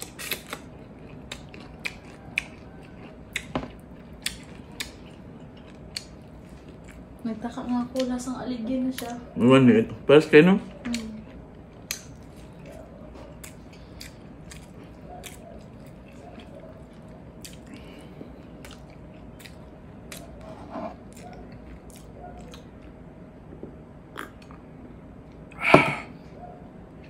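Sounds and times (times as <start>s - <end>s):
wet chewing: 0.0s - 7.2s, 10.7s - 23.0s.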